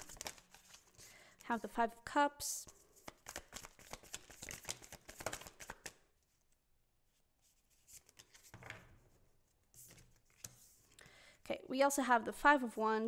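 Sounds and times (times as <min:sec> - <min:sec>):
cards rustling: 0:00.0 - 0:01.4, 0:02.7 - 0:06.0, 0:07.6 - 0:08.9, 0:09.7 - 0:11.0
cards flicking: 0:03.1 - 0:06.0.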